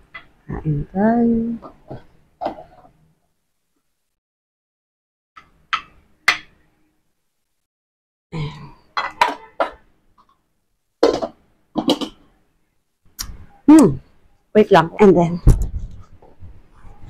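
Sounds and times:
dishes and utensils clinking: 8.9 - 9.8.

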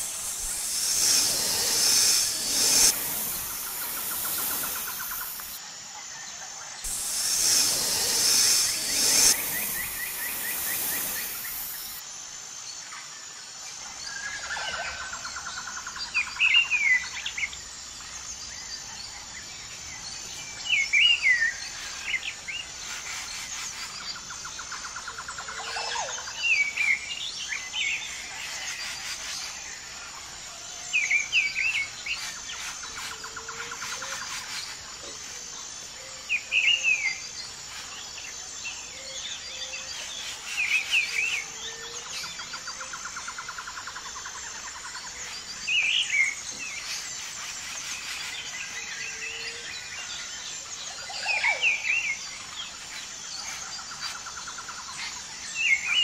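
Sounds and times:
birds chirping: 0.0 - 5.6, 6.8 - 12.0
high insect hum: 0.0 - 56.0.

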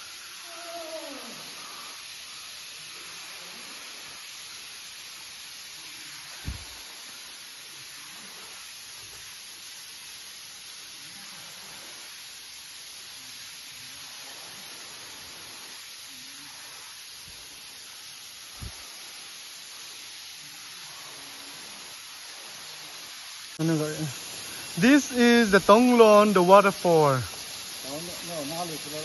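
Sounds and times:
waterfall rushing: 20.9 - 29.0.

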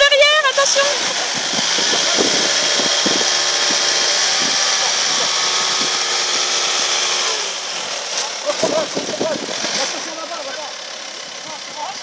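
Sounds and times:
van engine revving: 0.0 - 12.0.

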